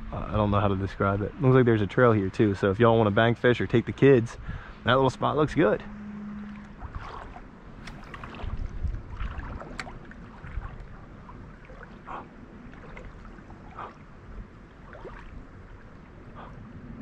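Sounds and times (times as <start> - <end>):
creek water trickling: 0.0 - 17.0
low rumble: 0.0 - 17.0
short splashes: 5.7 - 16.6.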